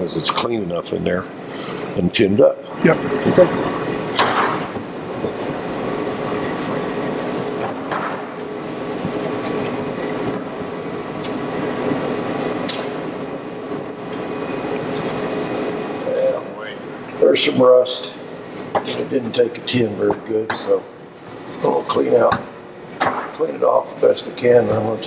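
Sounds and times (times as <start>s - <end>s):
gas burner roaring: 0.8s - 8.8s, 9.5s - 21.3s.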